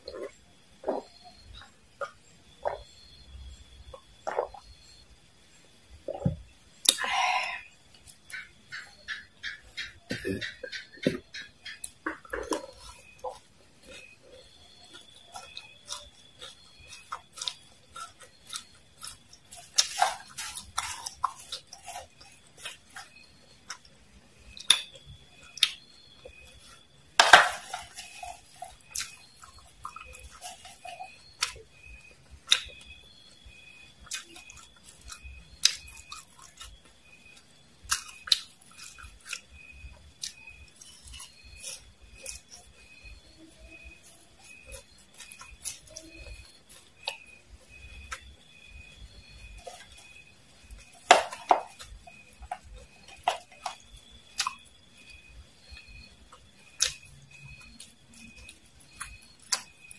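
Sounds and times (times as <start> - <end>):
crunching and chewing: 0.0 - 59.9.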